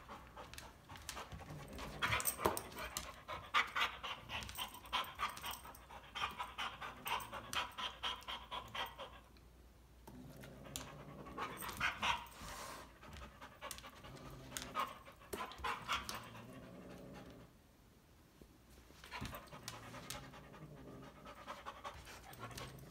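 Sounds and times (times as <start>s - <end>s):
dog panting: 0.0s - 9.3s, 19.1s - 22.9s.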